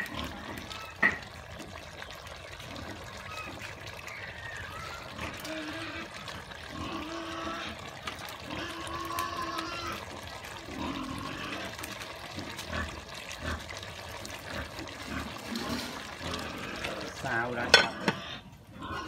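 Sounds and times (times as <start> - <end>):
stew bubbling in a pot: 0.0 - 19.0
metal ladle stirring: 15.4 - 18.3.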